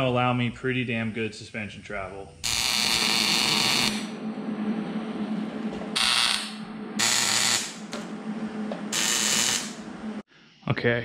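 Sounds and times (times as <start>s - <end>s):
low hum: 2.3s - 10.3s
power tool running: 2.4s - 4.1s, 6.0s - 8.1s, 8.9s - 9.8s.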